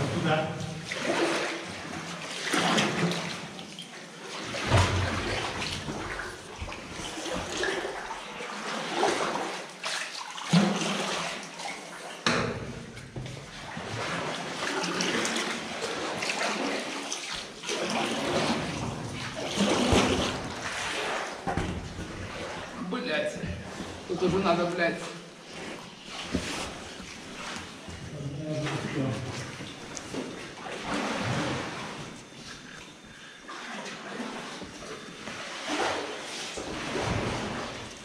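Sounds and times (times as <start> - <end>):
boat paddle splashing in water: 0.0 - 22.9, 33.5 - 38.0.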